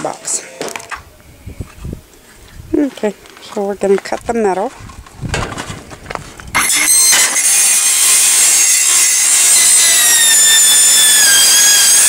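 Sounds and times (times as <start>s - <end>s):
circular saw screeching through metal: 6.6s - 12.0s.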